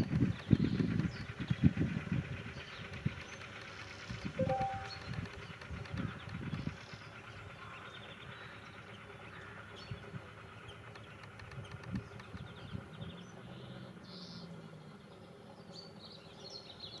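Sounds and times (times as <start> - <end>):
small locomotive running faintly: 0.0 - 17.0
birds chirping: 4.4 - 17.0.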